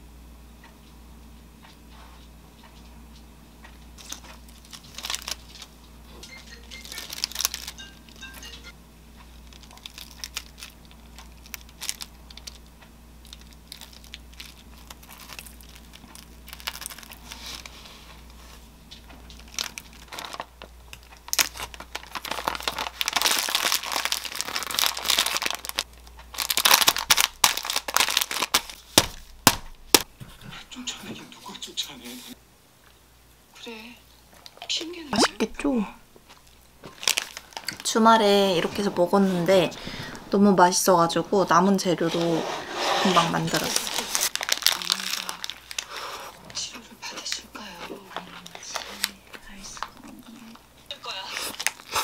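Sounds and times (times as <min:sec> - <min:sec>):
baking paper crinkling: 0:04.0 - 0:08.5, 0:09.2 - 0:30.1, 0:36.3 - 0:52.0.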